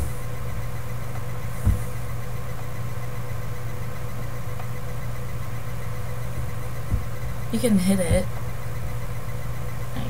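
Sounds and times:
faint steady tone: 0.0s - 10.0s
low electrical hum: 0.0s - 10.0s
dull thump: 1.6s - 2.1s, 6.4s - 7.4s.

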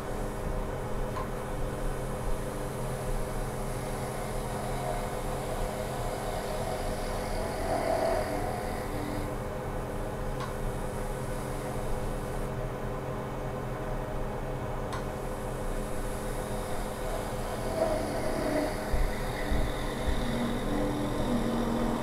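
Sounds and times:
wood lathe motor hum: 2.4s - 9.4s, 15.5s - 22.0s
turning tool cutting wood: 3.8s - 9.2s, 16.4s - 22.0s.

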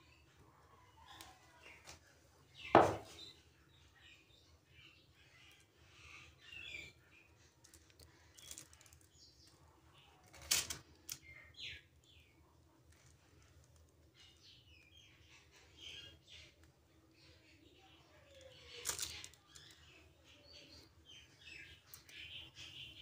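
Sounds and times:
sharp knock: 2.8s - 3.1s.

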